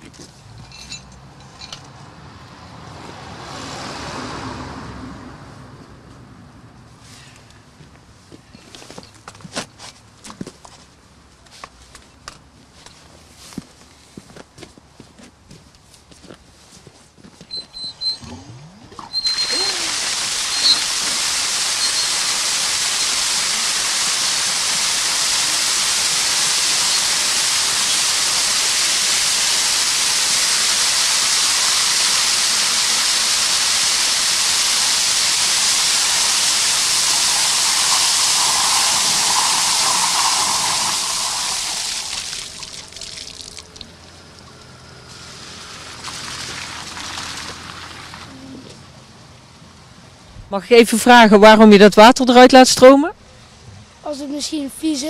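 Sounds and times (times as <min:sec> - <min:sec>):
water rushing from fire hydrant: 0:19.0 - 0:48.4.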